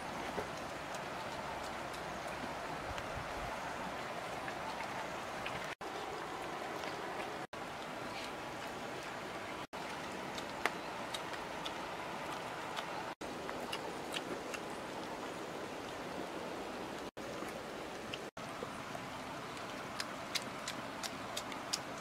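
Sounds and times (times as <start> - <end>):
dogs chewing: 4.5 - 16.0, 17.1 - 22.0.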